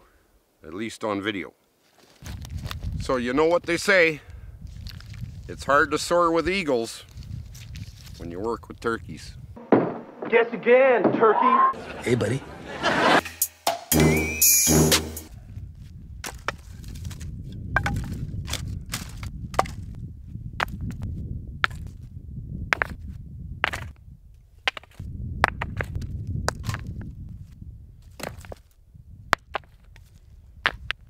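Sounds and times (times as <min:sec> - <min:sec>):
stones clicking and knocking: 0:16.2 - 0:20.0, 0:21.6 - 0:22.0, 0:22.7 - 0:23.0, 0:23.6 - 0:24.0, 0:24.6 - 0:27.1, 0:28.0 - 0:31.0.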